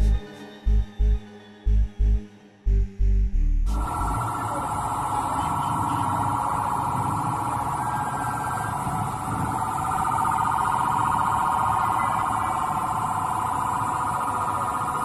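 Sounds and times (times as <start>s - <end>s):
low rumble: 0.0s - 14.5s
electronic alarm warbling: 3.7s - 15.0s.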